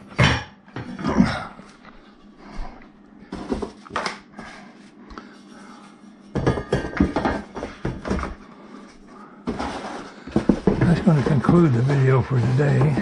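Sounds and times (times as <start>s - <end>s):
cardboard packing scraping and knocking: 9.5s - 13.0s.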